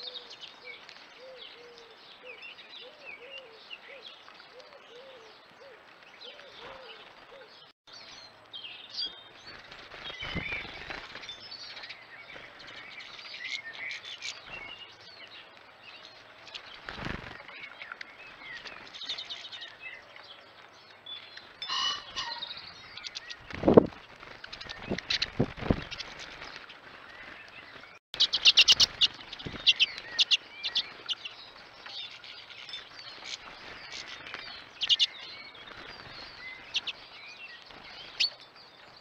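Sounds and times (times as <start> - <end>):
finches chirping: 28.2 - 38.4.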